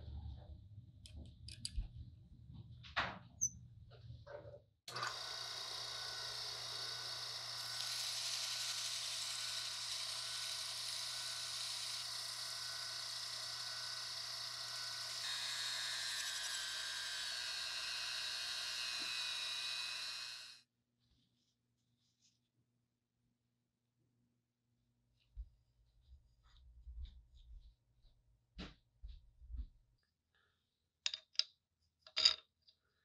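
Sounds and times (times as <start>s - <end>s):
drill press motor hum: 4.9s - 20.6s.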